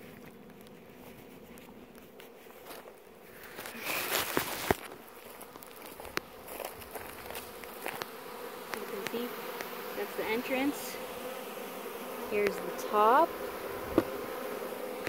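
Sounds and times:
rustling: 0.0s - 8.2s
honeybees buzzing: 0.0s - 15.0s.

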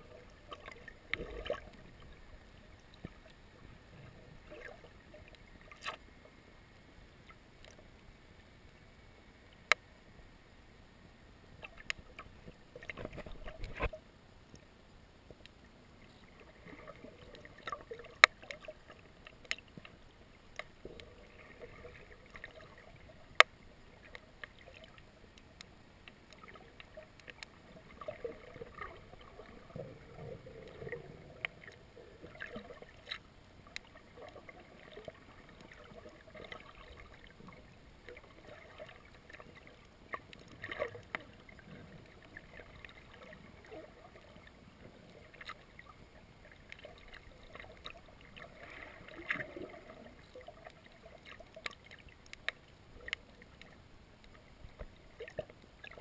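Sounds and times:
muffled underwater water wash: 0.0s - 56.0s
sharp underwater clicks and taps: 9.6s - 9.9s, 11.6s - 13.9s, 23.4s - 24.6s, 51.5s - 56.0s.

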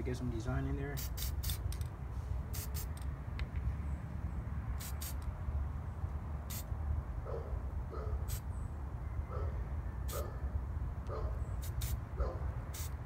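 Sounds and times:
spray paint can hissing: 1.0s - 1.9s, 2.5s - 3.0s, 4.8s - 5.3s, 6.4s - 6.7s, 8.3s - 8.5s, 11.6s - 12.0s, 12.7s - 13.0s.

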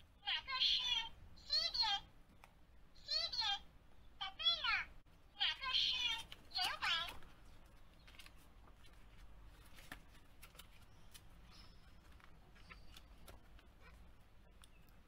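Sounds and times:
book pages turning: 6.2s - 15.0s.

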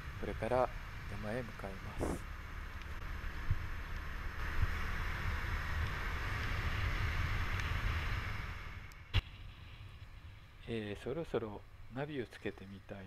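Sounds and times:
wind rushing over microphone: 1.9s - 2.2s.

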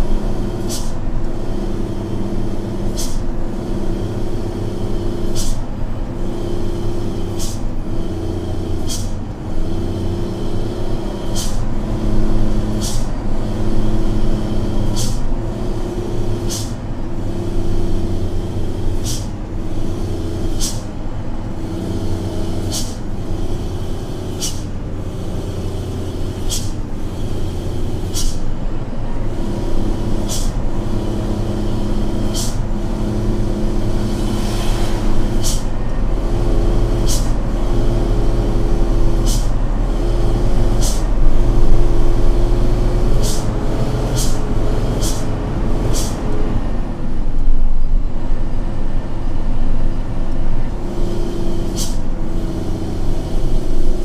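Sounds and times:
diesel truck engine running: 0.0s - 54.0s.

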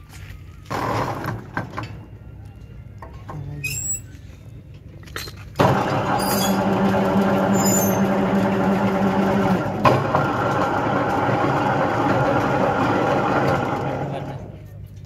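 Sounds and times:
bending machine motor hum: 0.4s - 14.9s.

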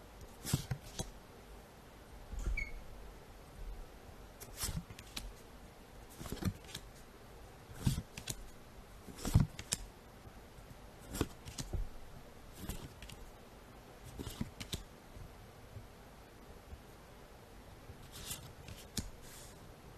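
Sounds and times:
cards swishing and flicking: 0.4s - 1.1s, 4.4s - 5.4s, 6.2s - 7.0s, 7.8s - 8.5s, 9.1s - 9.9s, 11.0s - 11.8s, 12.6s - 13.2s, 14.1s - 14.9s, 18.0s - 19.6s.

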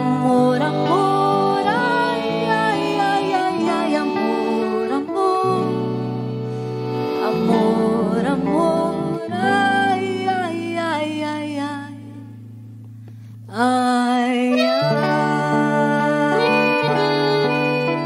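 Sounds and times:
live band playing slow song: 0.0s - 9.3s, 14.5s - 18.0s
guitar: 0.0s - 18.0s.

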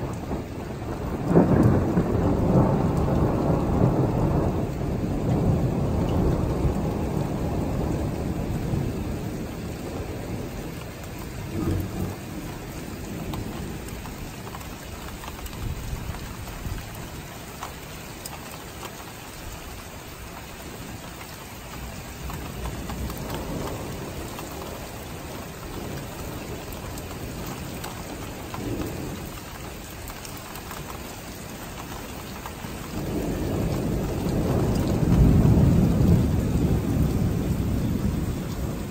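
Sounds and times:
thunder rolling: 0.0s - 16.9s, 22.1s - 29.4s, 32.7s - 38.9s
steady rain: 0.0s - 38.9s.

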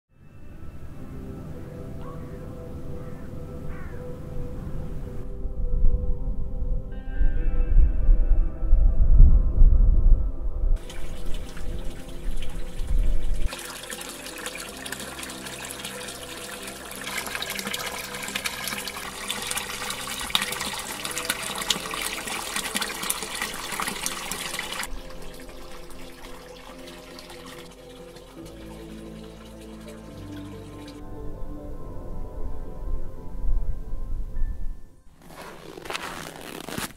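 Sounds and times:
deep low rumble: 4.1s - 13.5s
water pouring from a pipe: 10.8s - 31.0s.

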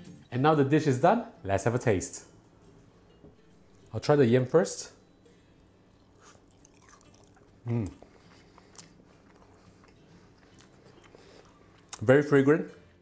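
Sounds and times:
man chewing crispy food: 6.0s - 12.1s
man humming in appreciation: 7.6s - 8.0s.

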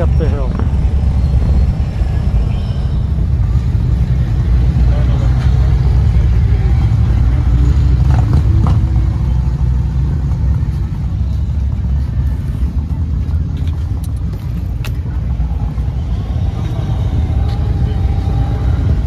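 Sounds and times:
vehicle engines and road noise: 0.0s - 19.0s.

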